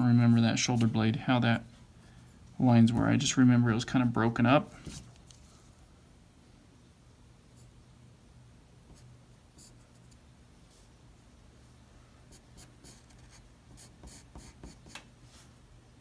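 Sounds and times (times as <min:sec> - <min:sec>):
pencil sketching on paper: 0:12.3 - 0:14.9.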